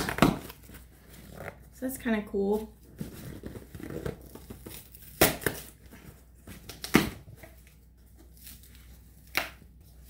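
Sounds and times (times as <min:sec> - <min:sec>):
sharp cardboard sounds: 0:00.0 - 0:01.4, 0:02.6 - 0:07.6
cardboard flaps rustling: 0:02.6 - 0:08.4.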